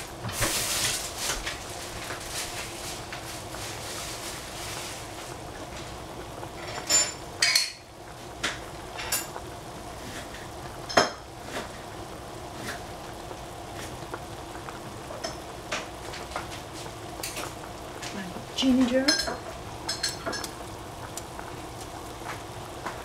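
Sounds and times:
dishes clinking and knocking: 6.6s - 7.8s, 19.1s - 20.6s.

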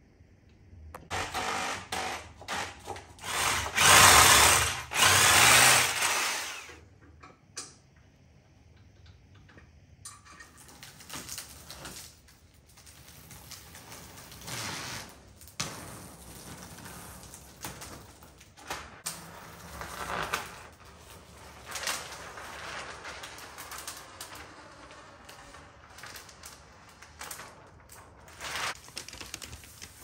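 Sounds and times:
plastic film crinkling: 19.6s - 30.0s.

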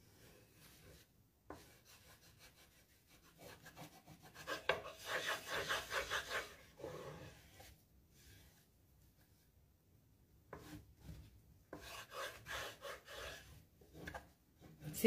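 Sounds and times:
tool scraping paper: 0.6s - 7.7s, 11.7s - 14.1s.

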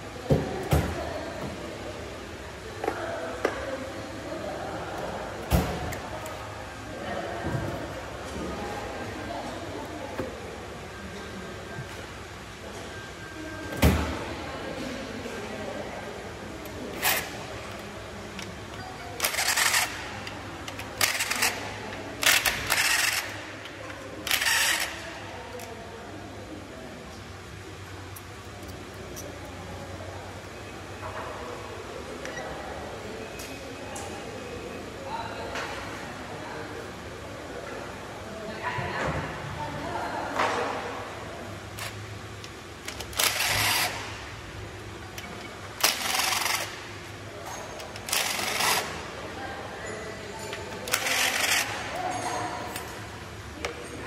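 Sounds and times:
cordless drill bursts: 43.2s - 44.0s.

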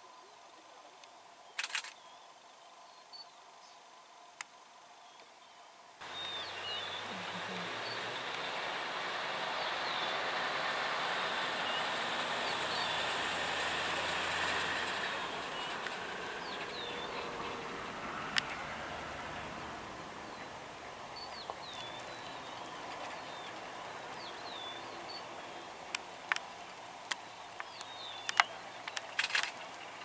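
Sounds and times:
birds chirping: 5.0s - 30.0s
broad rushing noise: 6.0s - 21.1s
vehicle engine running: 6.0s - 25.5s.

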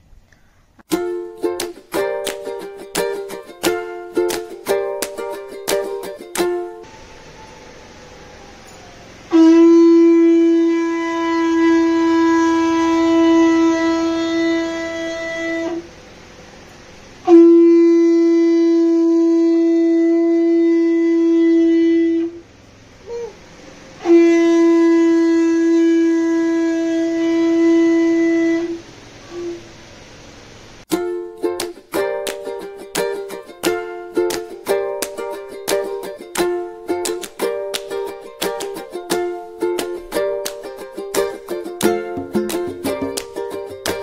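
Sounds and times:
conch shell blasts: 9.3s - 15.9s, 17.2s - 22.4s, 24.0s - 29.6s.

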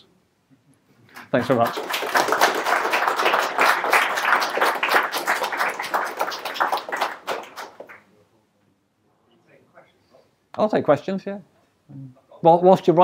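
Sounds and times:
audience applauding: 1.1s - 8.1s.

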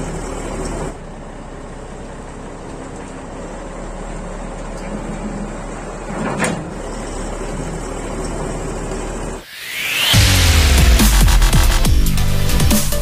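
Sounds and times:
diesel truck engine running: 0.0s - 13.0s
loud burst of noise: 9.4s - 13.0s.

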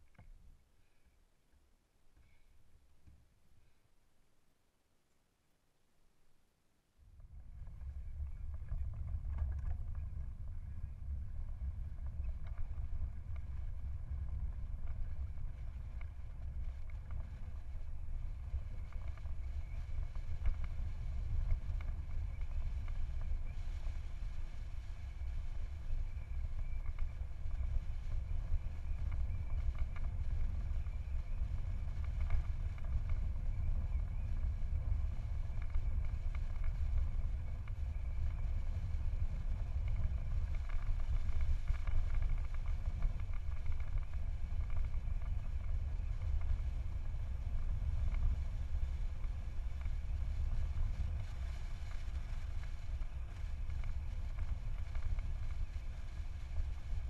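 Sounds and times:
wind buffeting microphone: 7.0s - 57.0s
road and tyre noise: 7.2s - 57.0s.

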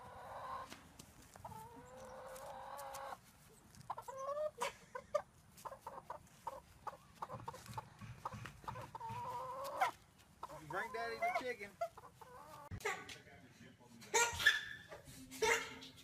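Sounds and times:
hen clucking and squawking: 0.0s - 0.7s, 1.3s - 13.0s.

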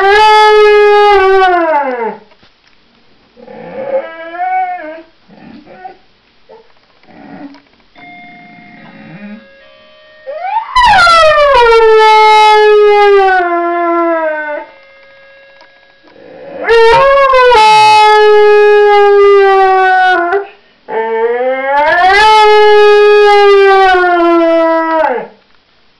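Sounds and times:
dog howling: 10.3s - 14.7s, 16.3s - 25.3s.

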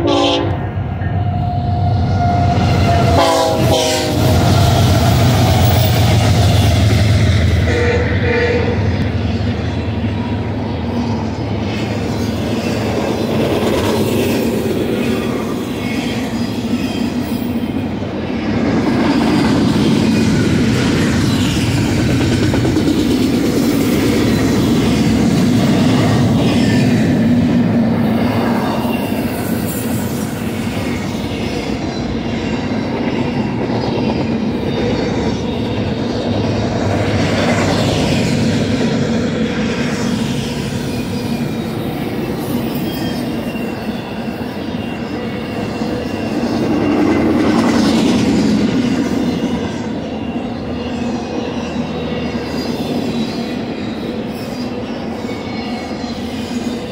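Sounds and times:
freight cars rumbling on rails: 0.0s - 56.9s
faint high wheel squeal: 28.0s - 33.5s, 39.6s - 56.9s.

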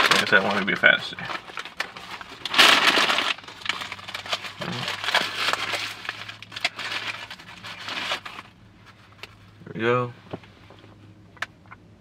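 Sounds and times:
food packaging crinkling: 0.0s - 9.0s.

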